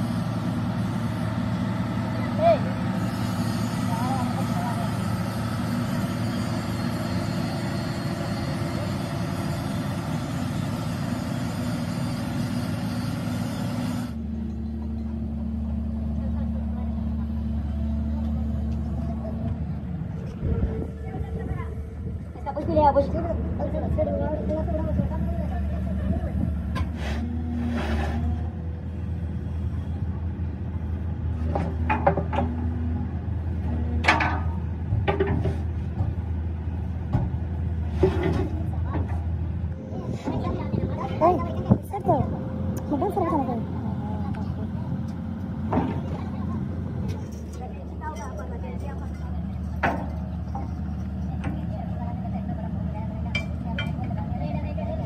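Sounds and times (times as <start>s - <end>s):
excavator diesel engine running: 0.0s - 55.0s
dull low hum: 14.1s - 55.0s.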